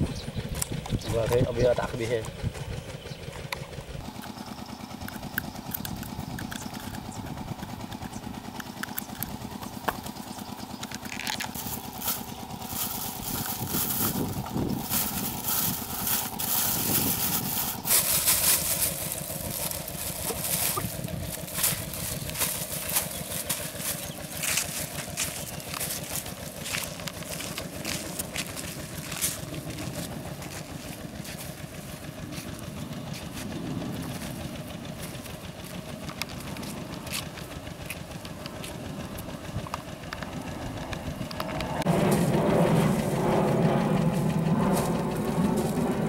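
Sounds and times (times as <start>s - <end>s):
steady engine hum: 0.0s - 46.0s
scissors cutting paper cup: 5.1s - 7.1s
plastic bag crinkling: 11.0s - 31.4s.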